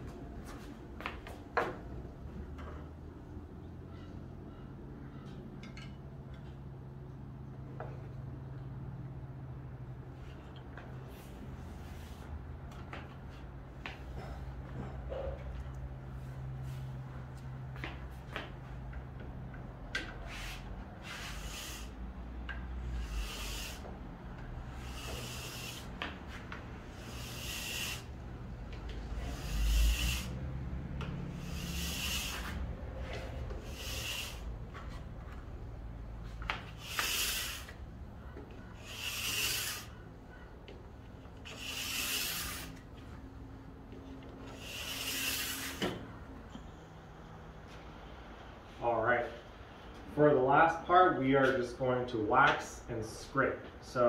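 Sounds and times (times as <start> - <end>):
file rasping along ski edge: 20.3 - 22.0, 22.8 - 23.9, 24.7 - 28.2, 29.1 - 30.4, 31.2 - 34.5, 36.8 - 37.8, 38.6 - 40.0, 41.4 - 42.8, 44.5 - 46.0.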